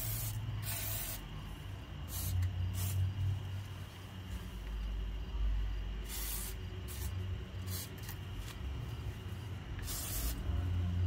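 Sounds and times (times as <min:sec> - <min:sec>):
aerosol can spraying: 0:00.0 - 0:01.2, 0:02.1 - 0:03.0, 0:06.0 - 0:08.6, 0:09.8 - 0:10.4
steady low hum: 0:00.0 - 0:11.0.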